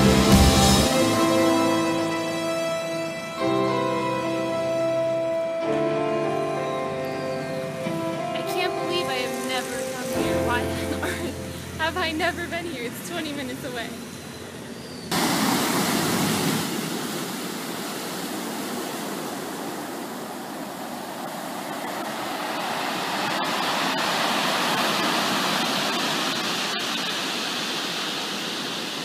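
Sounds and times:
surf breaking on pebbly shore: 0:15.1 - 0:29.0.

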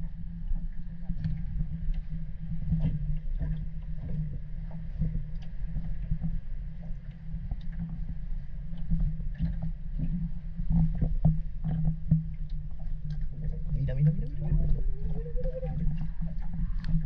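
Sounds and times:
low underwater hum: 0:00.0 - 0:17.0
water lapping: 0:09.3 - 0:17.0.

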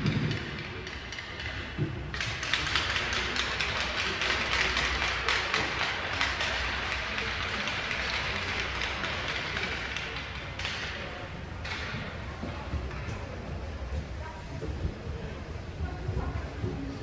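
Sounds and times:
applause and tapping: 0:02.2 - 0:11.0.

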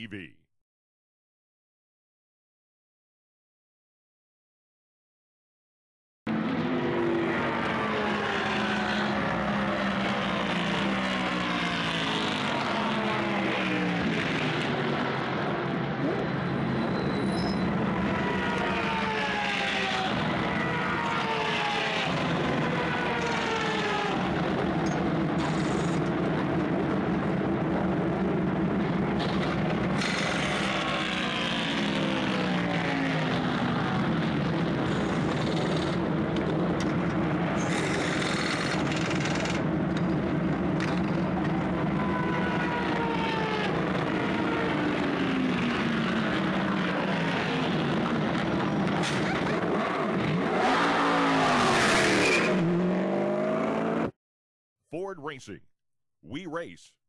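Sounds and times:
race car engines droning: 0:06.3 - 0:54.1.

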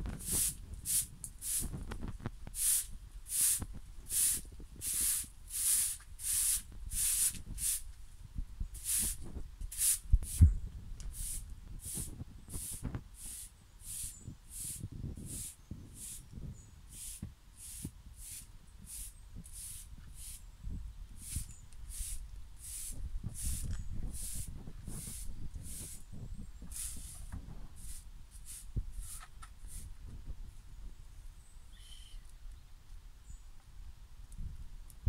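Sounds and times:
broom sweeping concrete: 0:00.1 - 0:07.9, 0:08.7 - 0:10.5, 0:11.1 - 0:20.4, 0:21.1 - 0:30.0.

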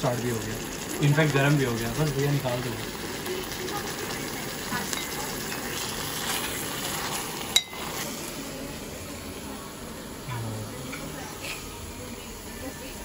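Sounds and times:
chicken sizzling in a metal pan: 0:00.0 - 0:13.0
ladle stirring: 0:00.1 - 0:08.5.

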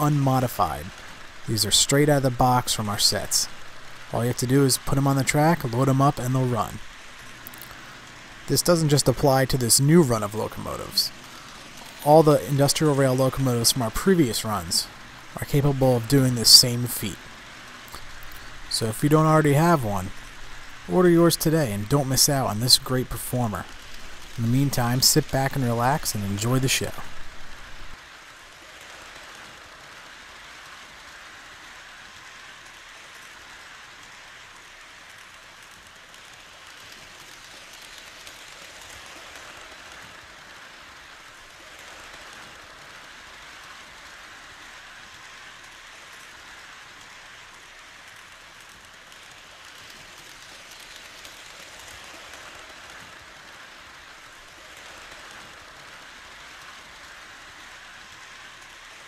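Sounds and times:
model trains rolling hiss: 0:00.0 - 0:59.0.

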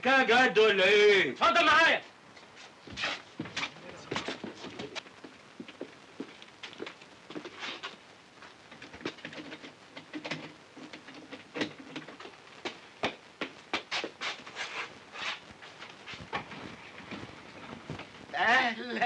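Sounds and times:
footsteps: 0:02.0 - 0:18.4.

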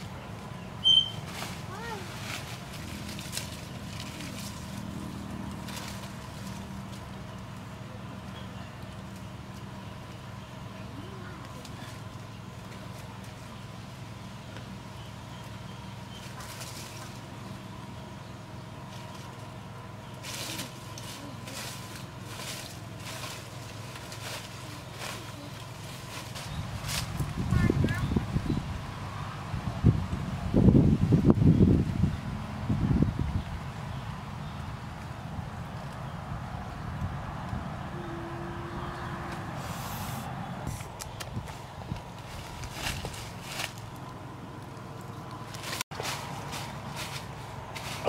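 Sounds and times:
plants crackling: 0:00.0 - 0:13.7, 0:16.2 - 0:17.7, 0:18.8 - 0:28.1, 0:38.8 - 0:48.0
leaves and undergrowth rustling: 0:00.0 - 0:48.0.

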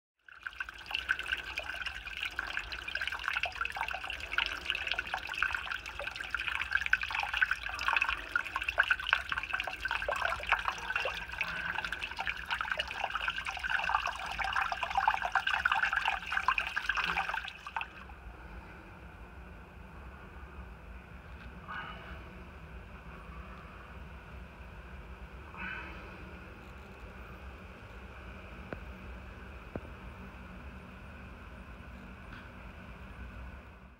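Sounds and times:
water spraying from a leak: 0:00.3 - 0:18.0.

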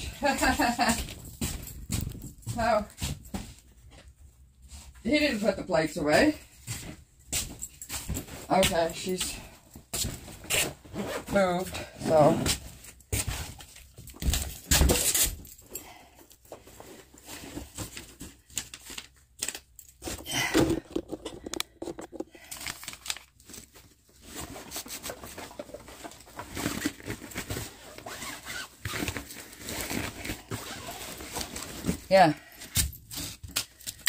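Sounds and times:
nylon bag rustling and crinkling: 0:22.0 - 0:33.6
zipper rasps: 0:26.6 - 0:31.3.

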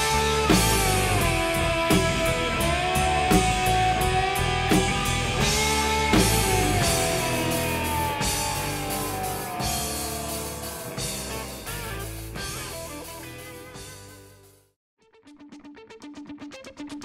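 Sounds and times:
drum hits: 0:00.0 - 0:12.9
bending guitar notes: 0:00.0 - 0:17.0
rock music: 0:00.0 - 0:17.0.

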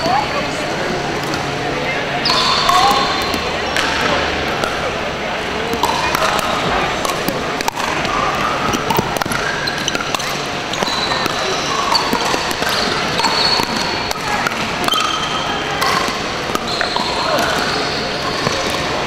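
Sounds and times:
busy sports hall din: 0:00.0 - 0:19.0
shoe squeaks: 0:02.2 - 0:03.8, 0:09.4 - 0:14.0, 0:16.6 - 0:18.8
paddles hitting plastic ball: 0:02.3 - 0:19.0.

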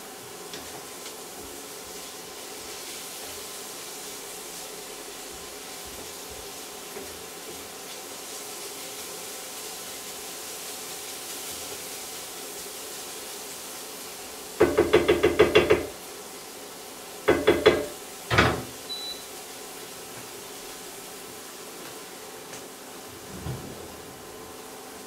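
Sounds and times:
wooden spatula knocking iron pan: 0:14.6 - 0:15.9, 0:17.3 - 0:18.6.

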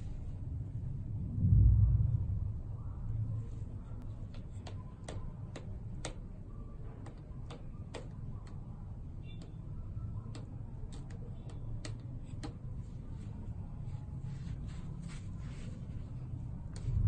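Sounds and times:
steady low rumble: 0:00.0 - 0:04.7, 0:12.0 - 0:17.0
sharp irregular clicks: 0:04.0 - 0:12.8.

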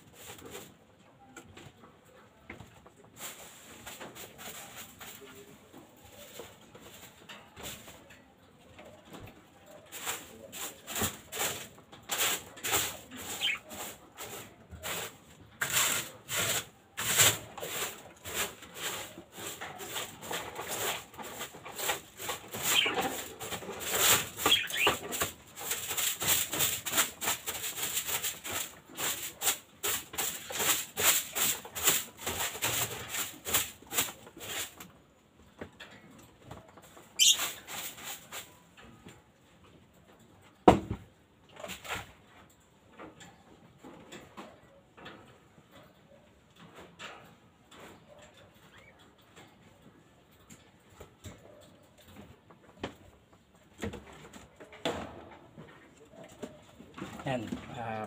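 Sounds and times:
scrubbing on a hard surface: 0:09.9 - 0:34.8, 0:37.2 - 0:38.6
bird chirps: 0:37.2 - 0:37.4.

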